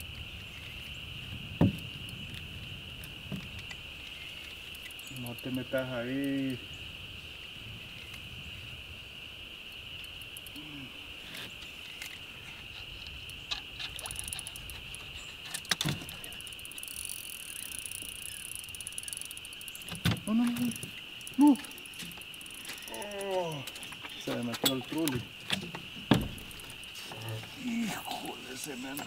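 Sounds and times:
high-pitched insect drone: 0:00.0 - 0:29.0
short voice sounds: 0:21.4 - 0:21.8
sharp clicks and knocks: 0:21.9 - 0:26.8.

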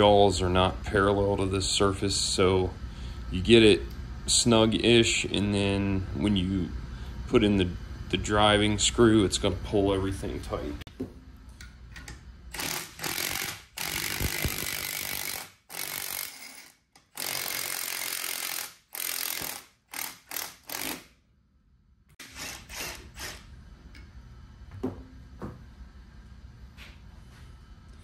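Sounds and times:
impact driver bursts: 0:12.5 - 0:21.1, 0:22.2 - 0:23.5.

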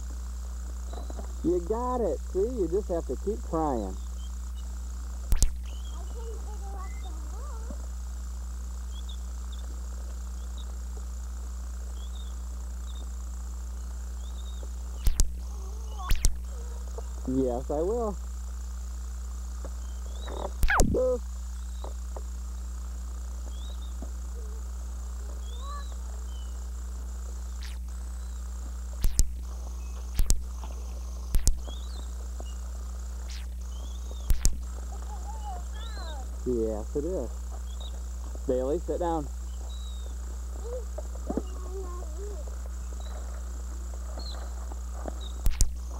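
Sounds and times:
low tape hum: 0:00.0 - 0:45.9
faint high chirps: 0:03.8 - 0:07.8, 0:08.8 - 0:09.7, 0:11.9 - 0:17.6, 0:23.4 - 0:26.7, 0:27.4 - 0:36.6, 0:39.4 - 0:43.4
sharp clicks: 0:05.3 - 0:05.8, 0:15.0 - 0:15.4, 0:16.1 - 0:16.5, 0:20.4 - 0:21.0, 0:29.0 - 0:30.6, 0:31.3 - 0:31.8, 0:33.2 - 0:34.7, 0:45.4 - 0:45.8.

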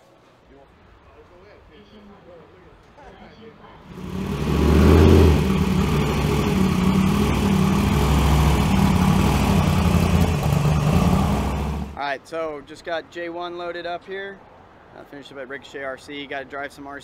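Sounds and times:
race engine idling: 0:03.9 - 0:12.0.

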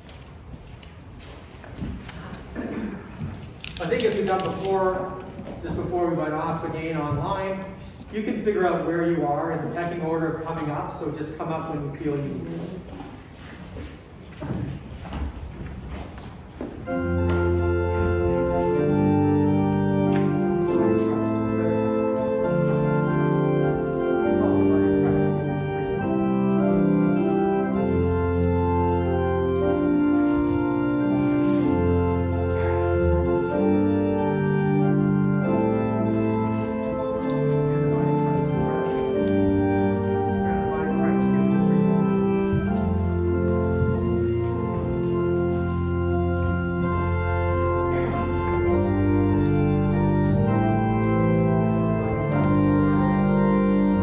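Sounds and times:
organ playing slow chords: 0:16.8 - 0:54.0.

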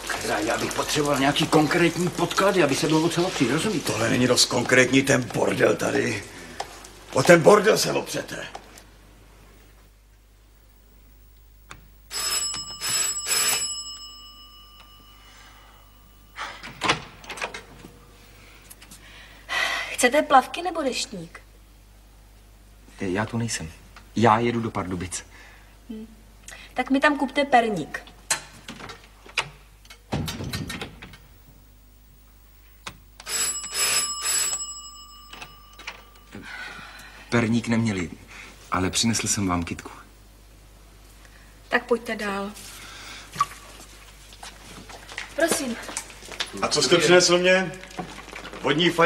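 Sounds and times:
electric doorbell ringing: 0:12.1 - 0:17.0, 0:33.2 - 0:36.4
door shutting with thud: 0:30.1 - 0:31.2.

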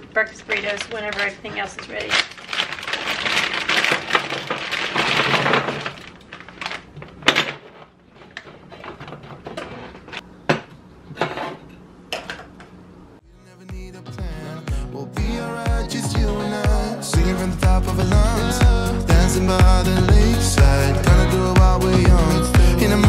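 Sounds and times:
crinkly plastic bag: 0:00.2 - 0:08.3
frozen food rattling onto baking sheet: 0:00.3 - 0:10.0.

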